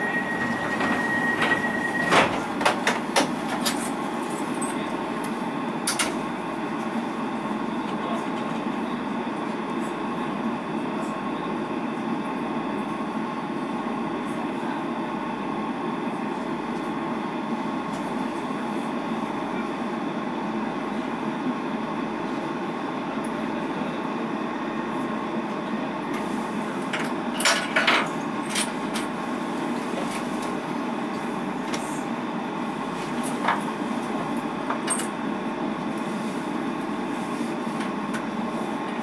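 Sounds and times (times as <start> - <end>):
door closing warning tone: 0.0 - 2.5
train doors shutting with knocks: 0.0 - 5.0
train equipment hum: 0.0 - 11.1.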